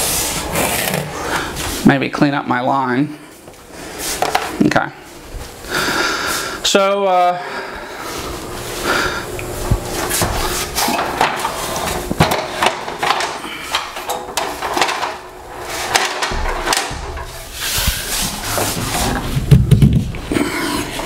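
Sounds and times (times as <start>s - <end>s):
board scraping against wall: 0.0s - 1.7s, 14.3s - 21.0s
metal ladder clanking and rattling: 10.8s - 17.9s
heavy thumps: 15.9s - 20.4s.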